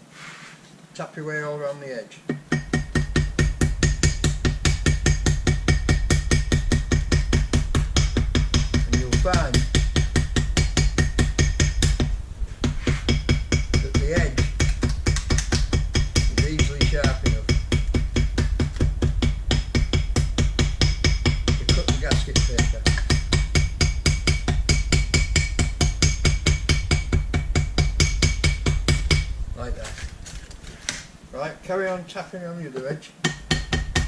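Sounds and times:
small hammer tapping paper on metal: 12.8s - 20.0s.

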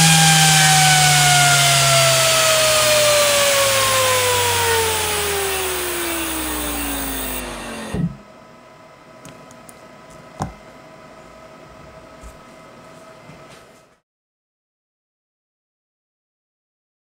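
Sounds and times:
fan winding down: 0.0s - 8.2s.

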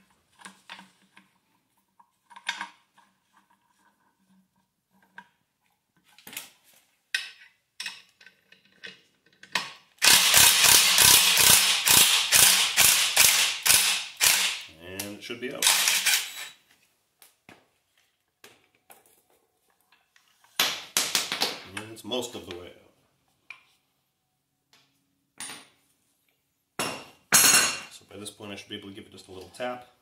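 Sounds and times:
impact wrench hammering: 10.0s - 14.6s.

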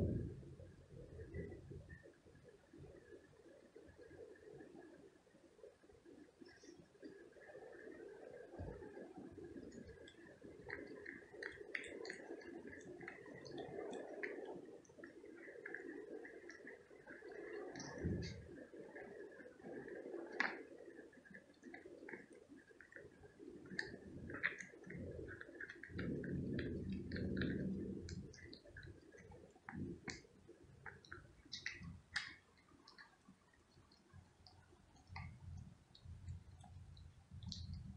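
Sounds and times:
low rumble: 0.0s - 2.1s, 17.9s - 18.5s
cat chewing and licking food: 7.7s - 37.9s.

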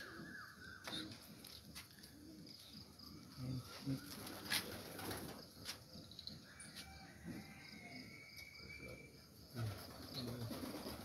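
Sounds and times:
pigeons cooing: 0.0s - 6.0s.

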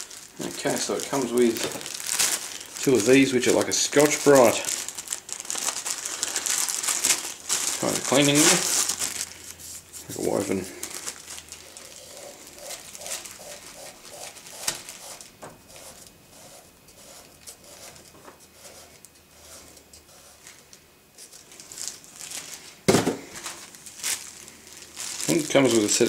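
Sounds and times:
plastic bags crinkling: 0.0s - 15.4s, 21.4s - 26.0s.

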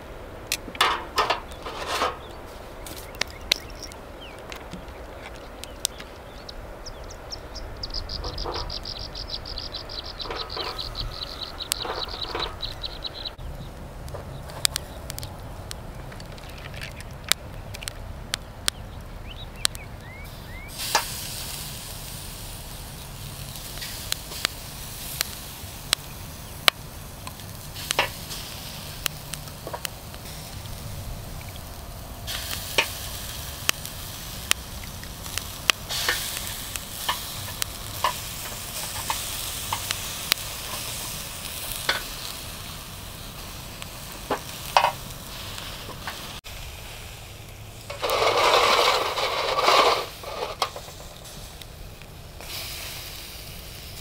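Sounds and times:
skewers tapping on rack: 0.5s - 2.3s
food sizzling on grill: 0.9s - 17.3s, 19.1s - 54.0s.

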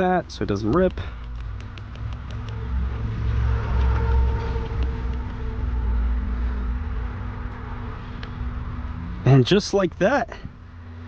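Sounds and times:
motor vehicle engine rumbling: 0.0s - 11.0s
faint hum: 1.0s - 9.5s.

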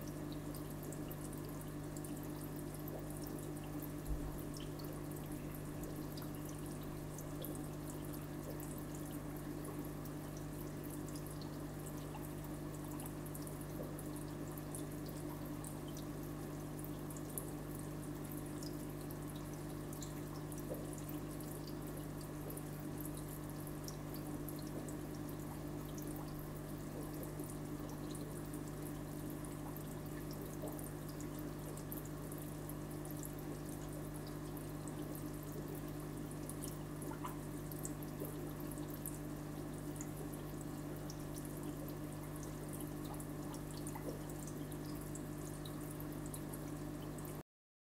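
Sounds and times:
water drips and bubble pops: 0.0s - 47.4s
water trickling: 0.0s - 47.4s.

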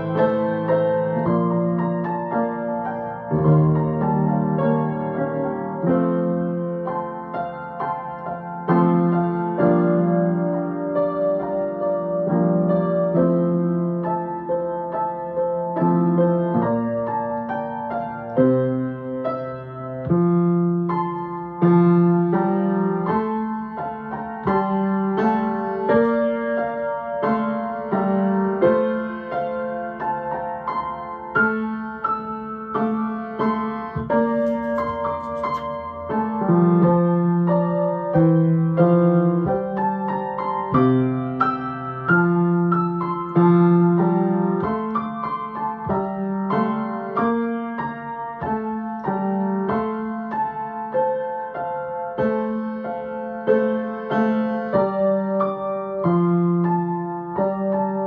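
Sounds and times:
slow solo piano piece: 0.0s - 58.0s
sheet music page turning: 33.9s - 36.0s.

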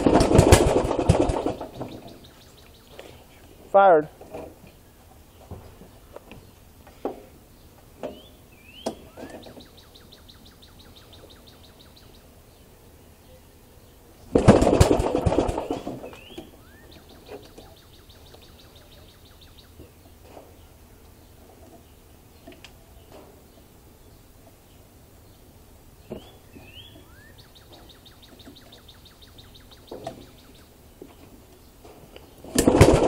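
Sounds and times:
small engine pull-start rattle: 0.0s - 2.0s, 14.4s - 16.3s, 32.5s - 33.0s
bird trilling: 15.5s - 19.8s, 26.1s - 30.7s.

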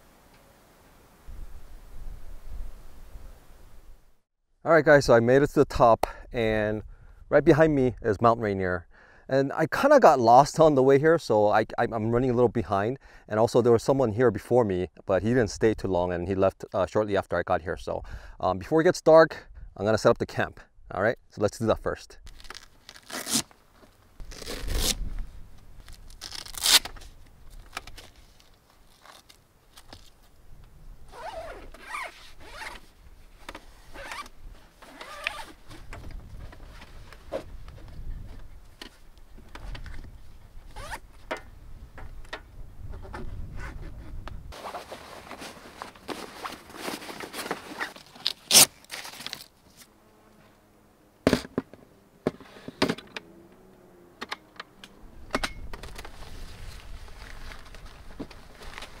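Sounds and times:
zipper being pulled: 22.3s - 23.5s, 24.2s - 25.1s, 26.2s - 26.9s, 31.1s - 32.8s, 33.8s - 35.6s, 40.7s - 41.0s.

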